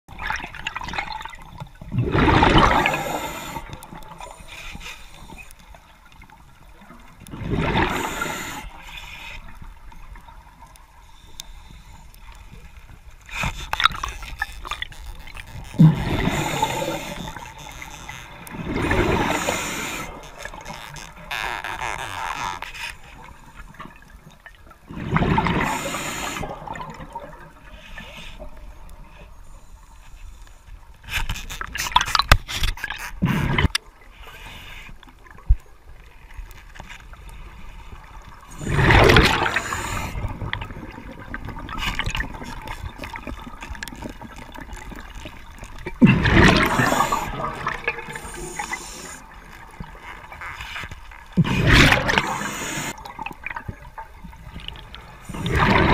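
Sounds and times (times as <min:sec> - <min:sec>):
underwater rushing gurgling water: 0:00.1 - 0:11.1, 0:11.7 - 0:21.4, 0:23.2 - 0:29.1, 0:37.1 - 0:55.9
sharp clicks underwater: 0:09.4 - 0:27.5, 0:30.4 - 0:33.9, 0:38.2 - 0:55.9.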